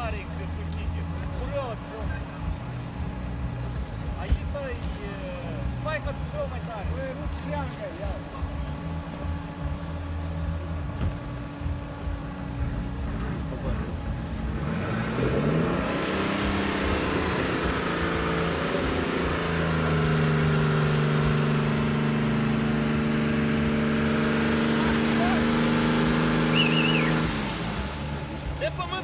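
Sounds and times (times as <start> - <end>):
car engine idling and revving: 0.0 - 29.0.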